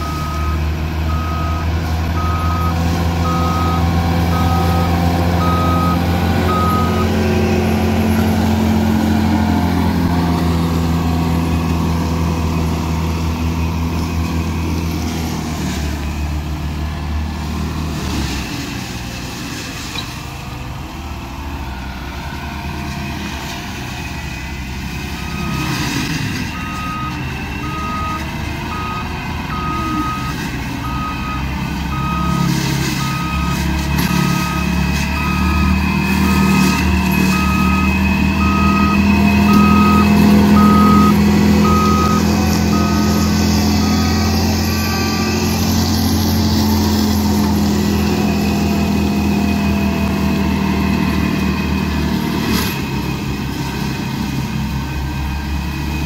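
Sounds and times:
backup alarm beeping: 0:00.0 - 0:07.2, 0:26.6 - 0:44.3
diesel engine running: 0:00.0 - 0:56.0.

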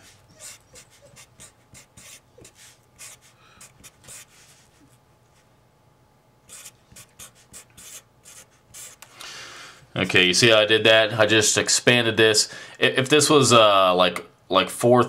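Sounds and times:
marker pen scratching on paper: 0:00.0 - 0:05.0, 0:06.5 - 0:09.0.

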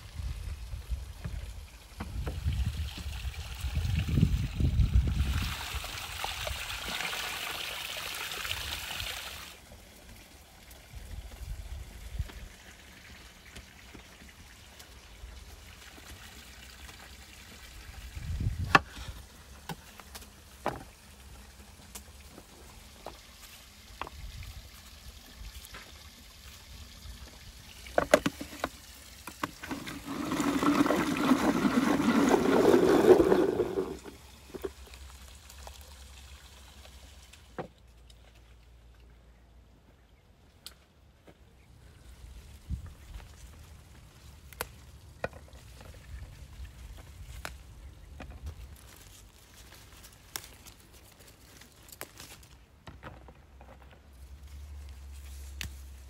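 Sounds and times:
food chopper churning: 0:29.7 - 0:34.1.

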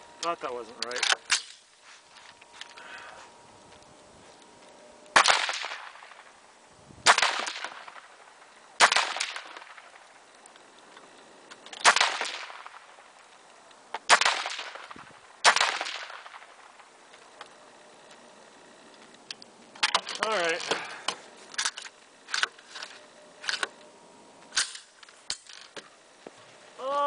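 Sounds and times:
rifle shots: 0:05.1 - 0:06.4, 0:07.0 - 0:10.2, 0:11.8 - 0:13.2, 0:14.0 - 0:17.0.

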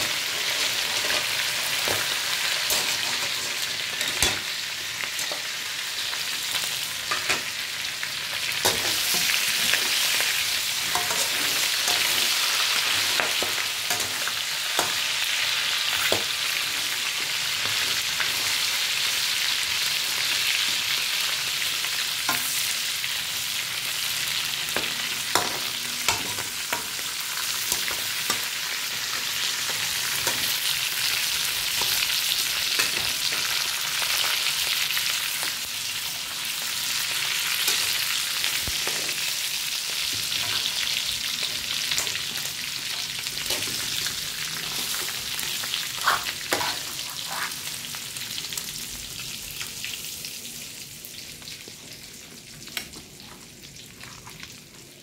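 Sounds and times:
crab sizzling in hot oil: 0:00.0 - 0:55.0
spatula scraping a wok: 0:08.6 - 0:18.7, 0:40.0 - 0:47.8.

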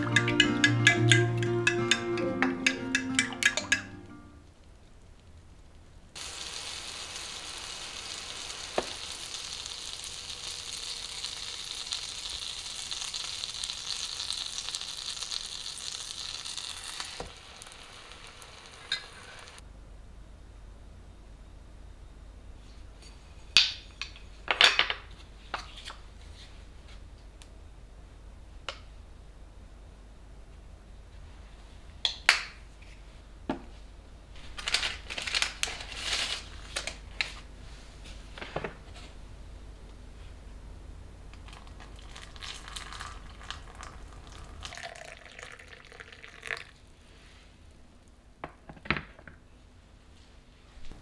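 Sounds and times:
utensils clattering: 0:00.0 - 0:04.0
water pouring into a cup: 0:41.5 - 0:46.8.

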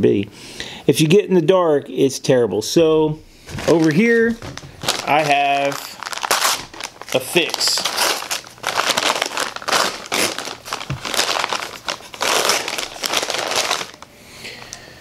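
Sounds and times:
paper bag crinkling: 0:03.5 - 0:14.1.

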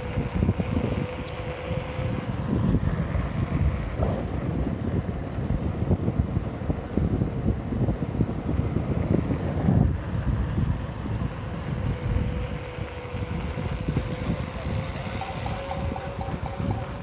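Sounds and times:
hub motor whine: 0:00.0 - 0:17.0
wind buffeting microphone: 0:00.0 - 0:17.0.

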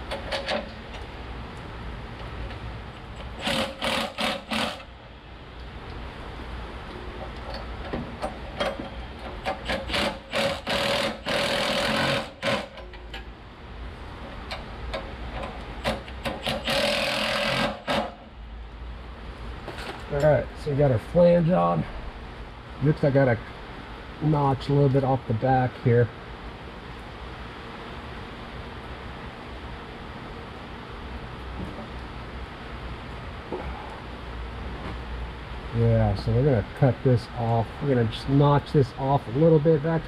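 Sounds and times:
cordless power tool bursts: 0:03.3 - 0:04.9, 0:09.6 - 0:12.8, 0:15.9 - 0:18.2.

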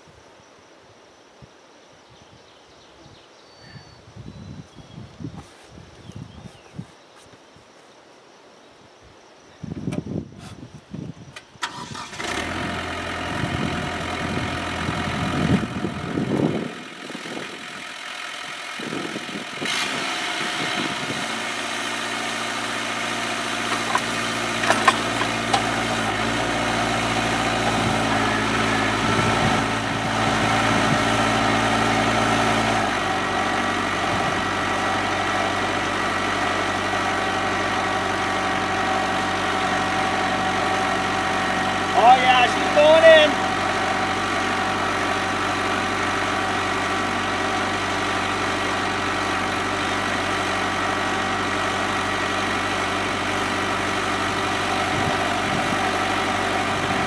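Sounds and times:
diesel tractor engine starting and running: 0:11.4 - 0:57.0.

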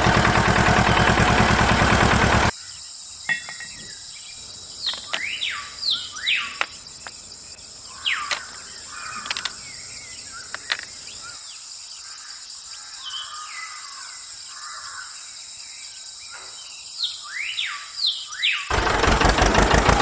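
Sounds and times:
birds calling: 0:00.0 - 0:15.2
high insect drone: 0:02.5 - 0:18.4
sharp clicks: 0:09.2 - 0:09.6.

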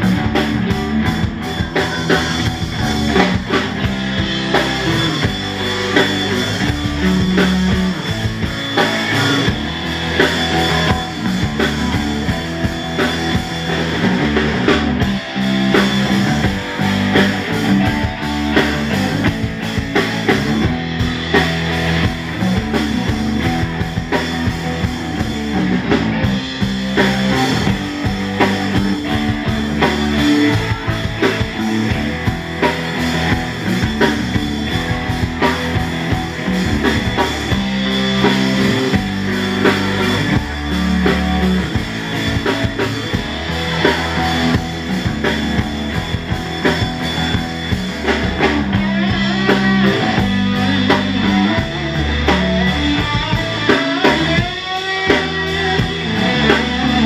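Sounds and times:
drum kit: 0:00.0 - 0:57.0
electric bass guitar: 0:00.0 - 0:57.0
electric guitar: 0:00.0 - 0:57.0.

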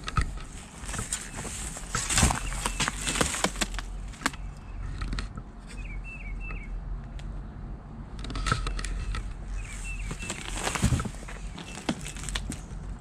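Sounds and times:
footsteps crunching on dry leaves: 0:00.5 - 0:04.3, 0:09.6 - 0:12.8
small bird chirping: 0:05.7 - 0:06.8, 0:08.9 - 0:12.4.

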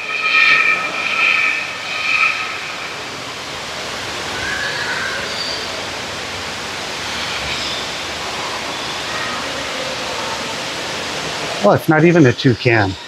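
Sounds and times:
indoor waterfall rushing: 0:00.0 - 0:13.0
faint bird calls: 0:04.1 - 0:06.0.

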